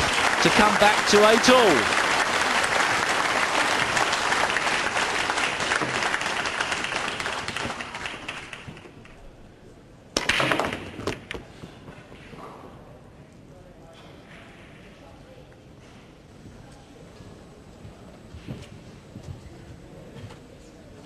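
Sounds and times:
audience applause: 0.0 - 8.9.

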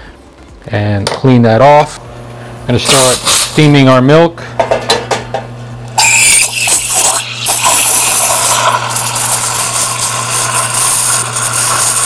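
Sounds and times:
espresso machine steam wand hissing: 2.8 - 3.8, 6.0 - 12.0.

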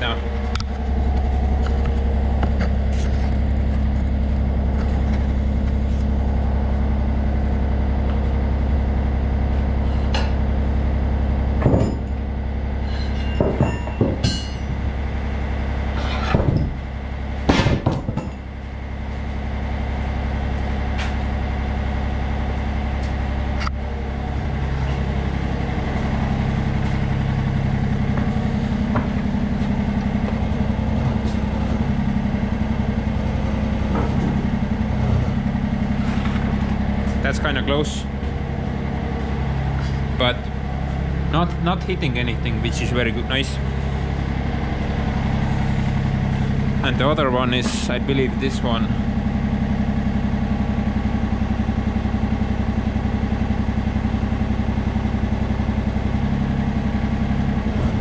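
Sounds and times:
diesel engine idling: 0.0 - 58.0
sharp metal clanks: 12.8 - 14.7.

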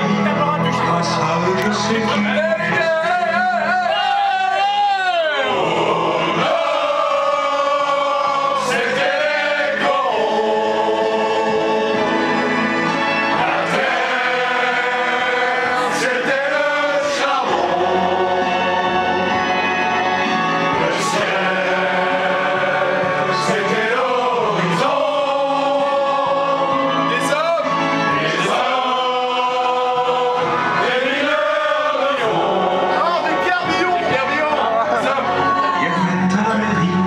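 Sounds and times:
men singing in chorus: 5.4 - 12.6, 13.3 - 19.8, 20.7 - 27.2, 28.1 - 33.3.

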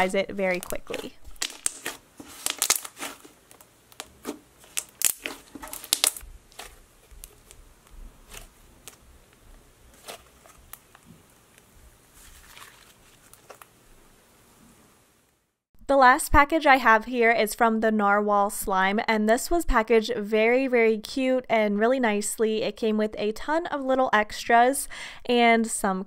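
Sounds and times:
slime clicking and popping: 0.5 - 7.6.

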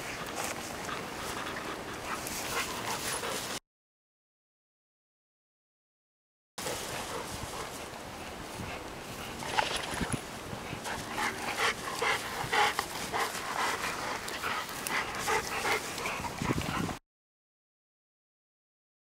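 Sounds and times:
dogs panting and whimpering: 0.0 - 3.6, 10.5 - 17.0.

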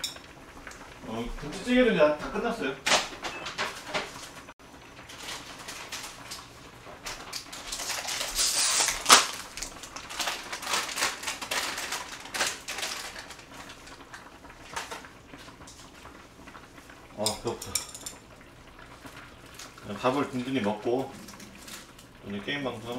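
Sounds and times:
hiss: 8.3 - 9.1.

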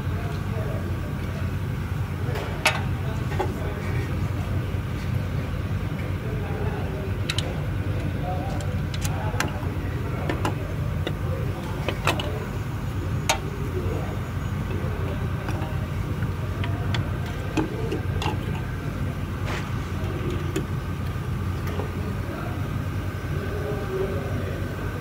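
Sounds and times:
steady low hum: 0.0 - 25.0
clicks and knocks of tools: 2.4 - 3.5, 7.2 - 9.6, 10.2 - 12.4.

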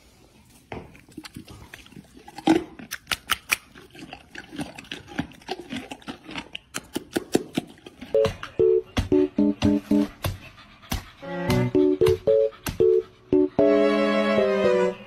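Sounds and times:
horse crunching a carrot: 0.4 - 8.6
wet lip-smacking: 0.9 - 8.2.

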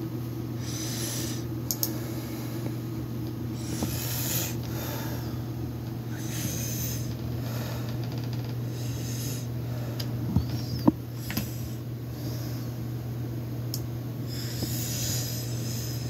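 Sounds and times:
slow breathing: 3.5 - 5.5, 14.3 - 16.0.

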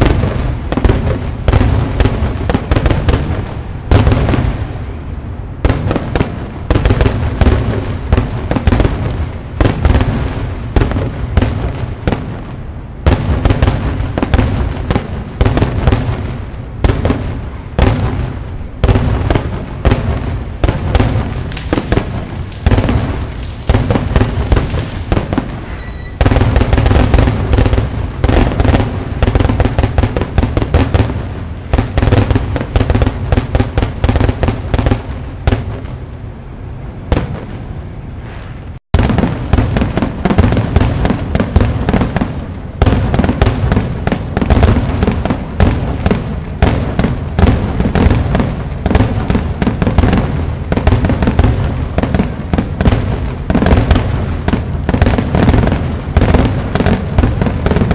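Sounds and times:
firework crackling: 0.0 - 57.9
firework shells bursting: 17.8 - 36.0.

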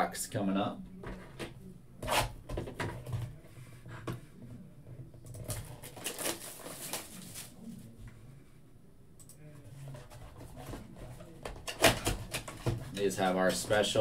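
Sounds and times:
plastic shrink-wrap tearing: 5.5 - 7.5.

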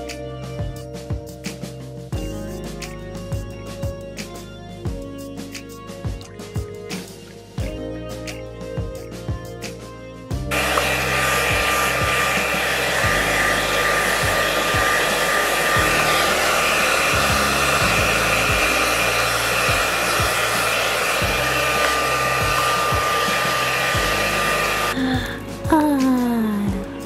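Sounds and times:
hair dryer running: 10.5 - 25.5.

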